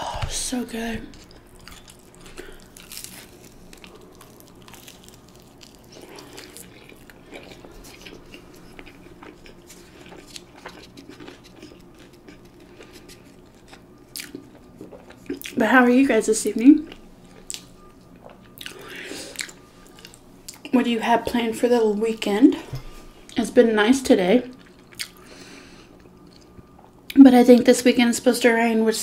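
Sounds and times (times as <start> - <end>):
faint steady hum: 0.0 - 29.0
person chewing food: 1.1 - 15.6, 16.9 - 20.7, 24.5 - 27.2.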